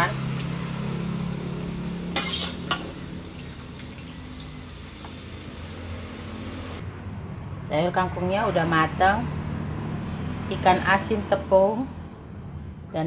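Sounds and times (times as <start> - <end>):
vegetables sizzling in a wok: 0.2 - 6.8
metal spoon scraping a wok: 2.1 - 2.9.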